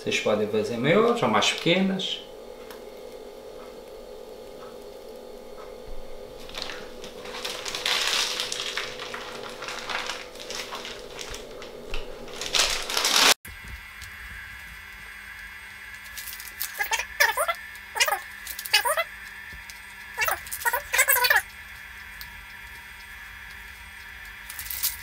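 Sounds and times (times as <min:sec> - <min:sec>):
steady electrical hum: 0:00.0 - 0:25.0
plastic bag crinkling: 0:06.4 - 0:13.4, 0:15.9 - 0:17.5, 0:24.4 - 0:25.0.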